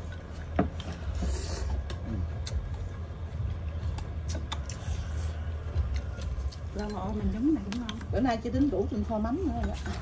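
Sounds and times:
chopsticks and spoons clicking on bowls: 5.8 - 10.0.

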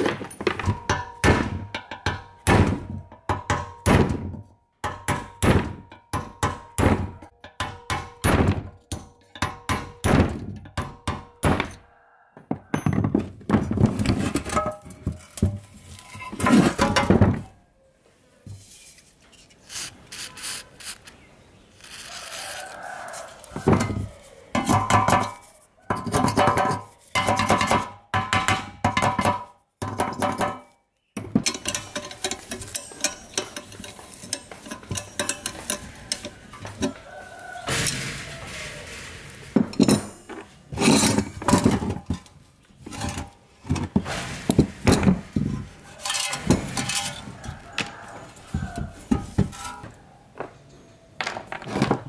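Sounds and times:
hammer knocking on metal: 26.2 - 30.6.

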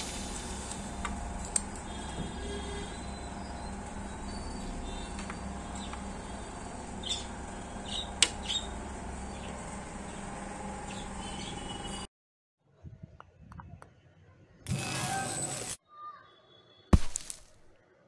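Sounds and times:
steady background hum: 0.0 - 12.1.

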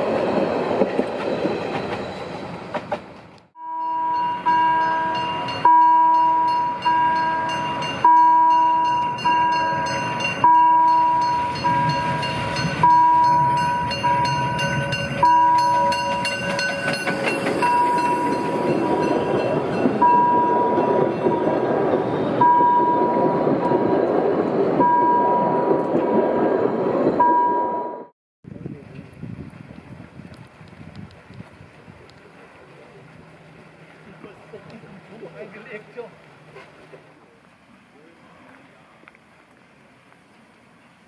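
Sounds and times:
train rumbling and rattling past: 0.0 - 41.0
level-crossing warning bell: 3.6 - 24.1, 24.8 - 28.1.

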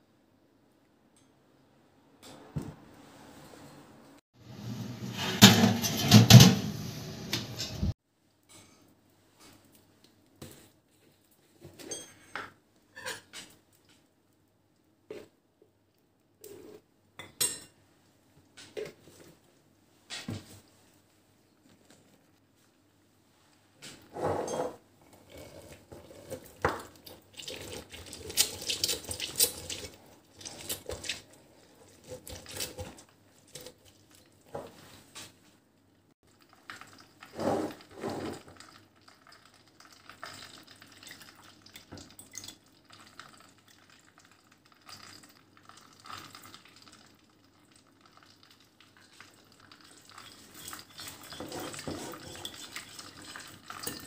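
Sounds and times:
juice squelching in citrus juicer: 25.1 - 34.5
metal spoon scraping ceramic bowl: 50.5 - 52.8.

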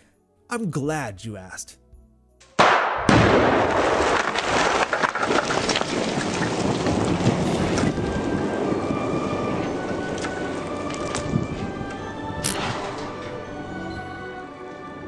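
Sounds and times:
large explosion: 2.6 - 9.5
crackling rumble: 3.1 - 13.1.

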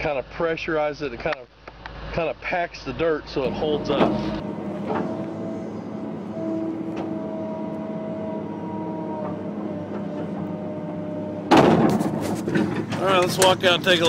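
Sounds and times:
excavator engine and hydraulics: 3.4 - 14.0
steady whining tones: 3.4 - 14.0
sudden loud noise: 3.4 - 14.0.

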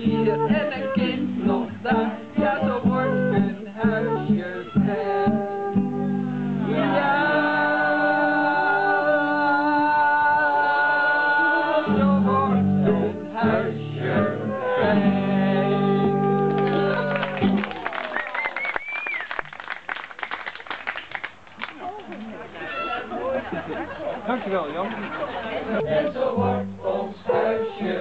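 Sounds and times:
group of people singing: 0.0 - 5.8, 6.4 - 17.6, 25.4 - 28.0
strummed guitar: 0.0 - 7.4, 11.8 - 17.7.

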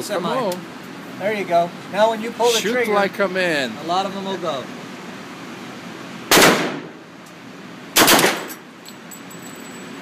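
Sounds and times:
submachine gun bursts echoing: 6.3 - 6.8, 8.0 - 8.6.

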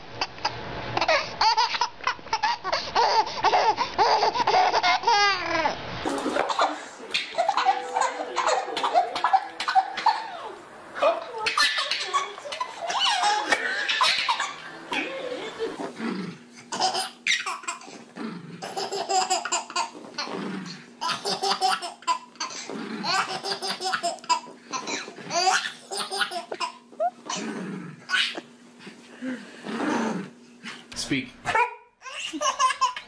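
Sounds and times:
baby laughing: 0.2 - 10.6, 11.4 - 16.0, 16.7 - 18.0, 18.6 - 20.3, 21.0 - 27.4, 28.1 - 28.5, 31.5 - 33.0.

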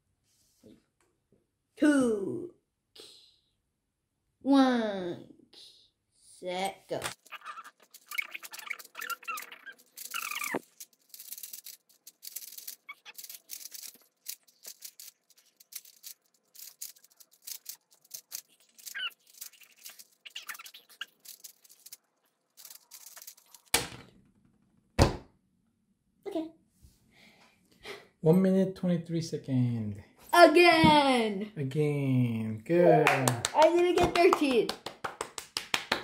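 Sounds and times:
short squeaky chirps: 7.2 - 10.7, 12.2 - 14.0, 18.2 - 21.7.

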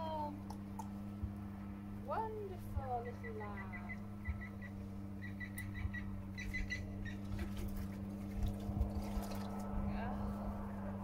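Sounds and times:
steady low hum: 0.0 - 11.0
bird calling whistle-like notes: 3.0 - 7.3.

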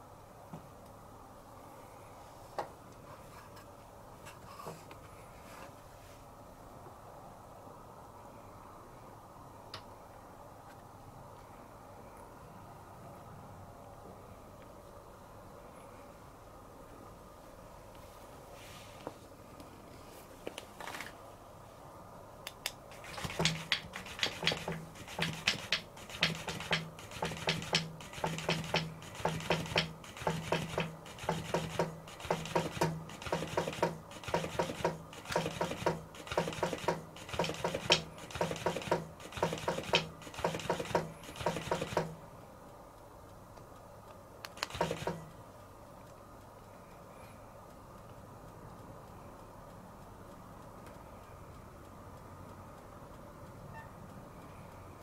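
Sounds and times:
toy motor humming in bursts: 22.9 - 42.2, 44.5 - 45.4.

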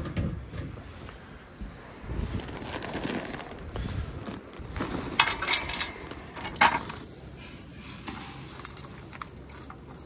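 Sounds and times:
plastic bag rustling: 1.8 - 7.0.

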